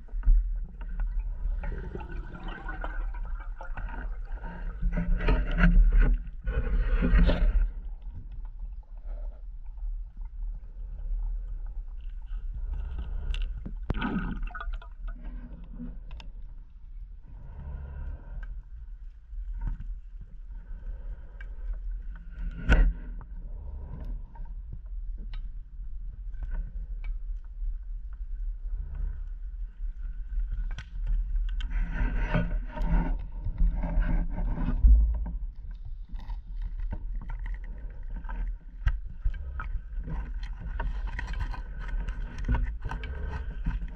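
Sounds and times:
low underwater rumble: 0:00.0 - 0:43.9
exhaled bubbles bursting: 0:01.1 - 0:04.4, 0:13.9 - 0:15.2.

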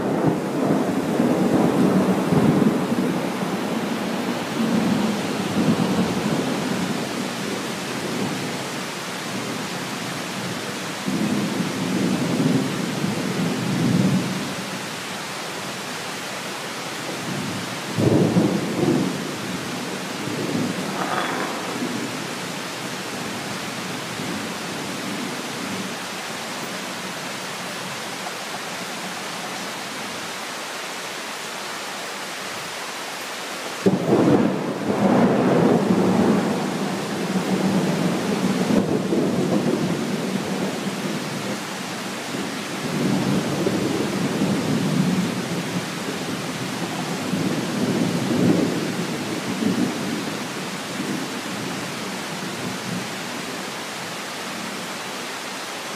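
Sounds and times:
heavy rain: 0:00.0 - 0:55.9
thunder rumbling: 0:17.3 - 0:23.5.

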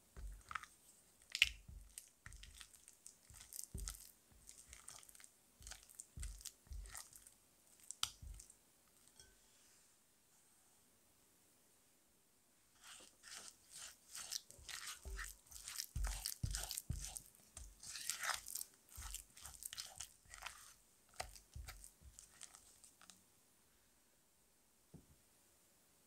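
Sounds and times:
spatula squishing and scraping glass bowl: 0:00.2 - 0:09.4, 0:12.8 - 0:23.1.

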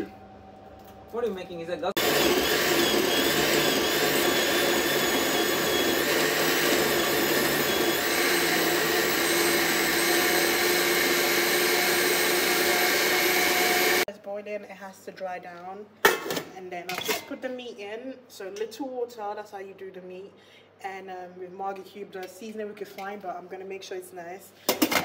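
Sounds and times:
blender motor whine: 0:02.0 - 0:14.1.

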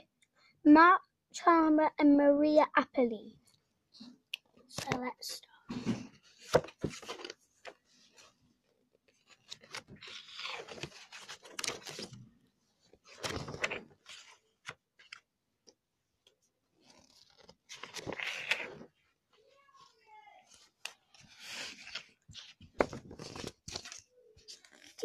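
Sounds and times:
book rustling and scraping on carpet: 0:06.2 - 0:08.4, 0:16.8 - 0:19.0.

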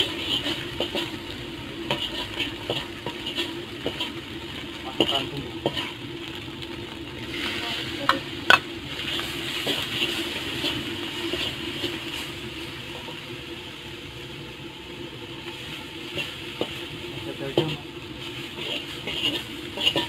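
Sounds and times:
spatula scraping and tapping pan: 0:00.0 - 0:01.2, 0:01.8 - 0:04.2, 0:05.0 - 0:06.0, 0:08.0 - 0:12.2, 0:15.4 - 0:16.8, 0:17.5 - 0:17.8, 0:18.5 - 0:20.0
food sizzling in hot oil: 0:00.0 - 0:20.0.

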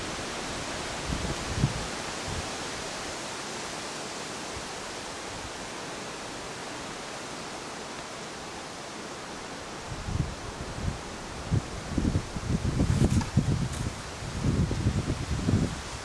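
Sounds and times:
outdoor ambience rushing hiss: 0:00.0 - 0:16.0.

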